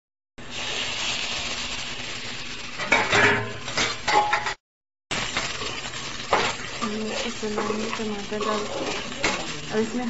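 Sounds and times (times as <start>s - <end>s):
vegetables sizzling in oil: 0.4s - 4.5s, 5.1s - 10.0s
spoon scraping a pan: 2.8s - 4.5s, 5.3s - 10.0s.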